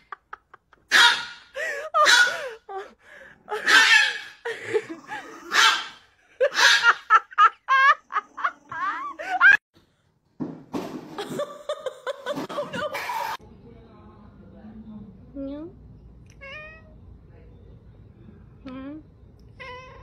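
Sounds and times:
person laughing hard: 6.4s - 9.6s.

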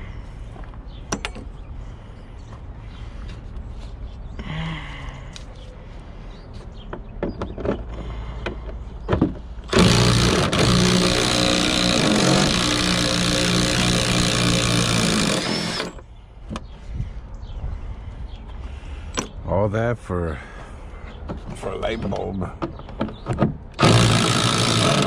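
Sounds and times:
cordless ratchet running: 9.7s - 16.0s, 23.8s - 25.0s.

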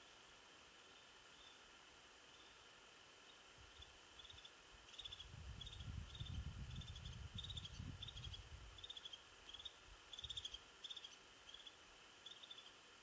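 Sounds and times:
small bird chattering: 3.8s - 12.8s
wind gusting rumble: 5.2s - 8.8s.

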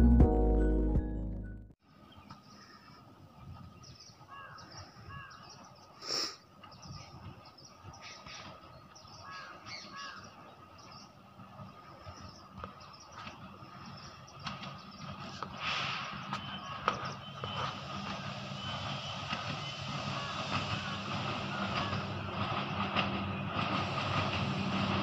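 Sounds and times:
music: 0.0s - 1.8s
birds calling: 2.0s - 25.0s.

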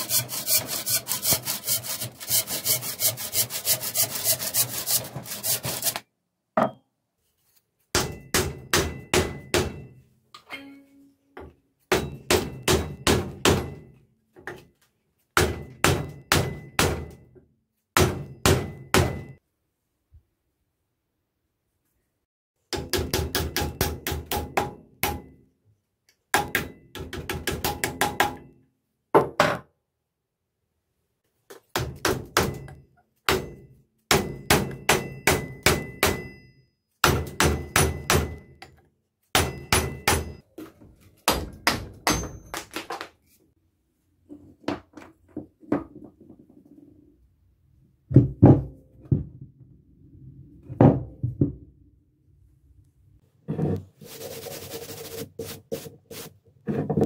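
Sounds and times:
hammer striking steel: 8.0s - 11.0s, 11.9s - 14.0s, 15.4s - 17.2s, 22.8s - 25.4s, 31.8s - 38.8s, 39.4s - 40.4s.

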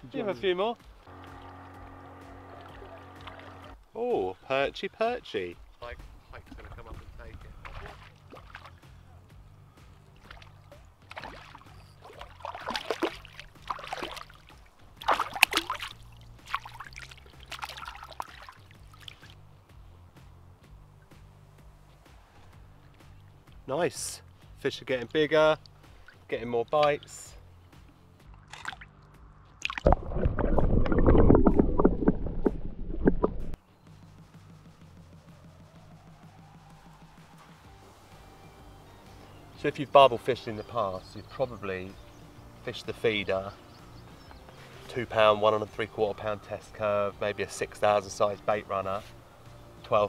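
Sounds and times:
fish splashing in water: 7.6s - 8.8s, 10.2s - 19.4s.

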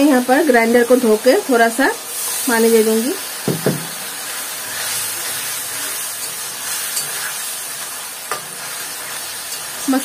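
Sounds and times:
paste sizzling in a pan: 0.0s - 10.0s.

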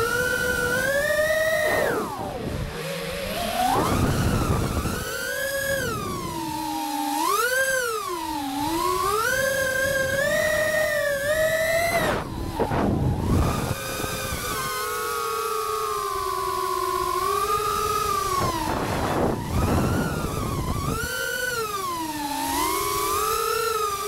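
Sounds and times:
quadcopter motors whining: 0.0s - 24.0s.

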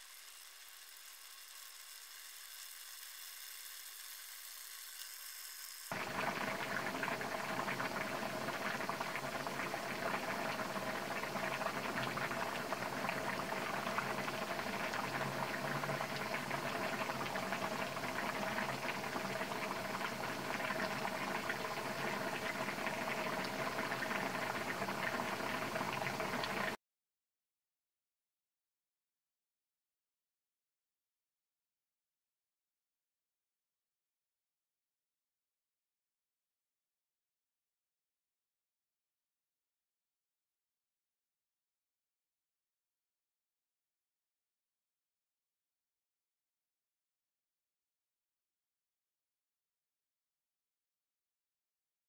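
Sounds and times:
broth boiling in a wok: 0.0s - 26.8s.

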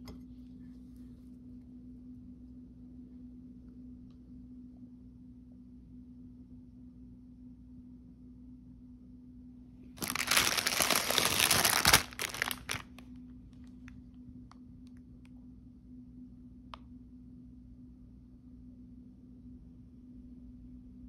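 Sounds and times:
plastic bag crinkling: 10.0s - 13.0s.

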